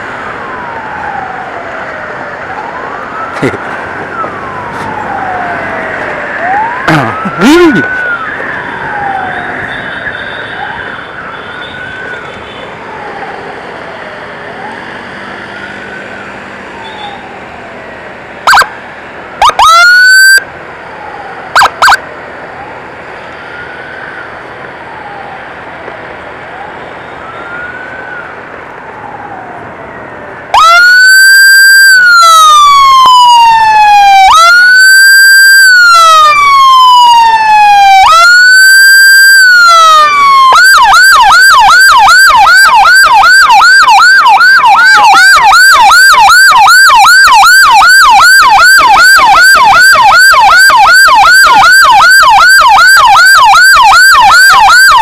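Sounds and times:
emergency siren wailing: 0:00.0 - 0:55.0
road noise: 0:00.0 - 0:55.0
short siren blips: 0:30.6 - 0:55.0.

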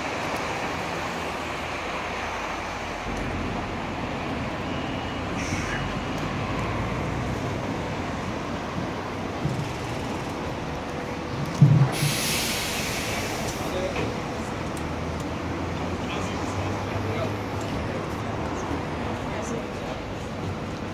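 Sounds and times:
traffic rumble and hum: 0:00.0 - 0:20.9
brief high hiss: 0:11.9 - 0:13.7.

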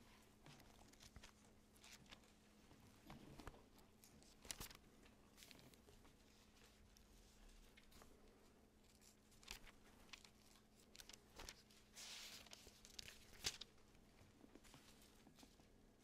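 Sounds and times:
faint steady hum: 0:00.0 - 0:16.0
thin pages being turned: 0:00.5 - 0:02.3, 0:03.3 - 0:07.0, 0:08.8 - 0:15.5.

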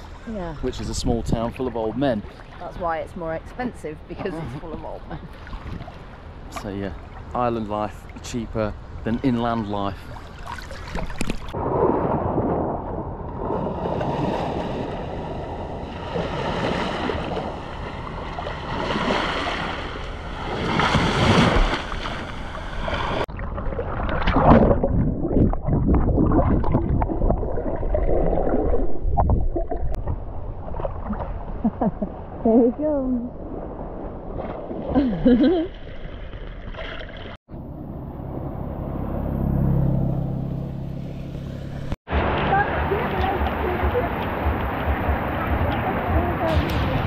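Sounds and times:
rough sea and surf: 0:09.4 - 0:27.0, 0:41.7 - 0:47.0
wind buffeting microphone: 0:42.2 - 0:47.0.

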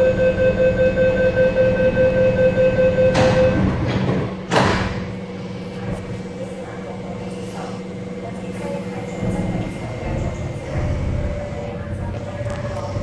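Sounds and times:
rapid beeping warning tone: 0:00.0 - 0:03.6
train equipment hum: 0:00.0 - 0:13.0.

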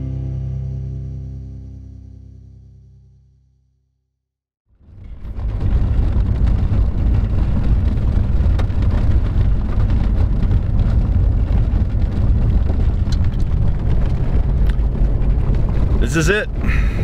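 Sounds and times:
truck road and engine rumble: 0:04.7 - 0:17.0
sharp rattles and clicks: 0:04.8 - 0:16.7.

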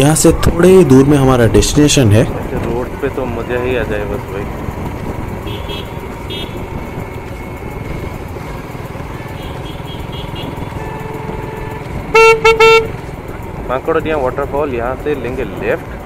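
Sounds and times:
vehicle engine: 0:00.0 - 0:16.0
wind noise: 0:00.2 - 0:09.2
car horn toots: 0:05.4 - 0:06.7, 0:09.3 - 0:13.0.

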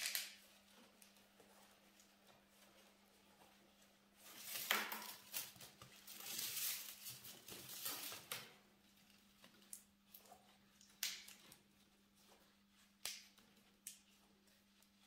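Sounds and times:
cane rustling and scraping: 0:00.4 - 0:09.6.

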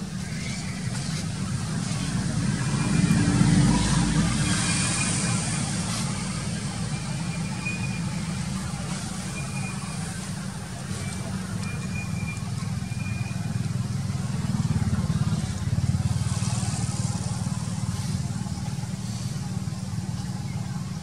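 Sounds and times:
low engine-like rumble: 0:00.0 - 0:21.0.

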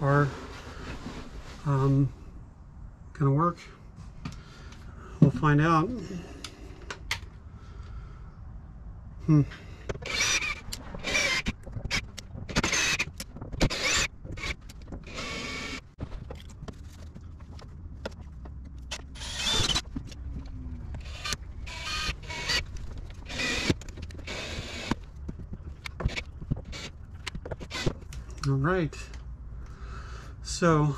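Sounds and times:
sharp clicks and handling knocks: 0:09.8 - 0:15.2, 0:16.0 - 0:21.1, 0:22.6 - 0:29.3
cordless drill whirring: 0:10.0 - 0:15.8, 0:18.9 - 0:19.8, 0:21.0 - 0:25.0, 0:27.6 - 0:28.0.

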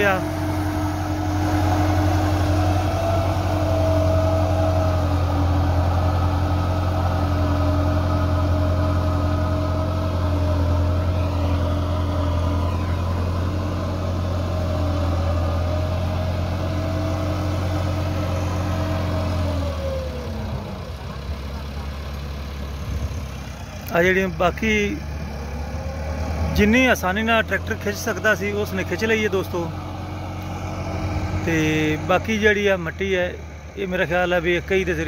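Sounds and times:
tractor diesel engine under load: 0:00.0 - 0:35.0.

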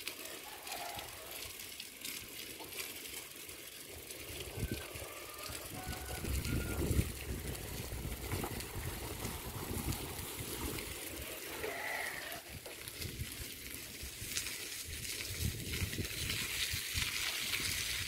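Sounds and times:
bicycle rolling on pavement: 0:00.0 - 0:18.0
wind rumble on microphone: 0:04.5 - 0:05.0, 0:05.6 - 0:10.9, 0:14.0 - 0:18.0.

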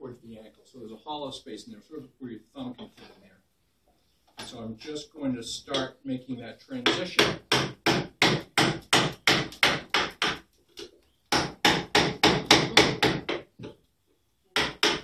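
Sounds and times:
mallet striking carving gouge: 0:06.9 - 0:10.4, 0:14.6 - 0:15.0.

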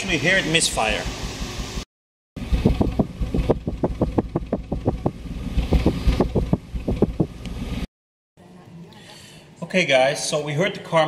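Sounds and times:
misfiring car exhaust idling: 0:02.4 - 0:07.8.

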